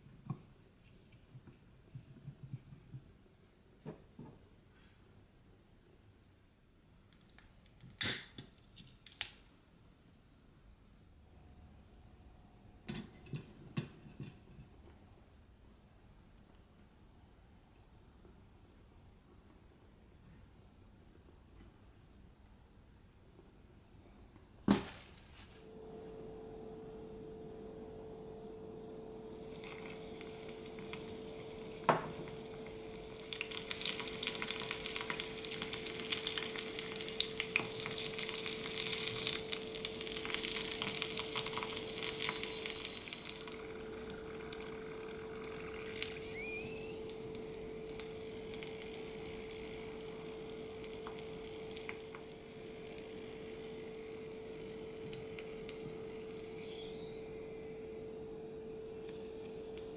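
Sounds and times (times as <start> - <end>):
cutlet sizzling in oil: 29.3 - 57.2.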